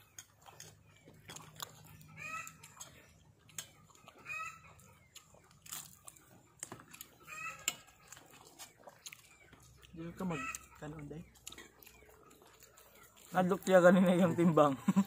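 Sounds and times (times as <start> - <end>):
clicks of people eating: 0.0 - 14.9
hen cackling: 2.0 - 2.8, 4.1 - 5.0, 7.2 - 7.9, 10.2 - 11.0.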